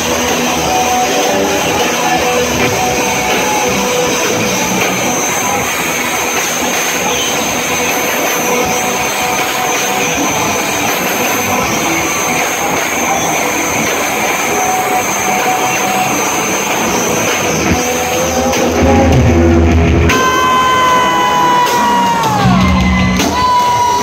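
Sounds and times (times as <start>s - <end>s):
distorted electric guitars: 0.0s - 24.0s.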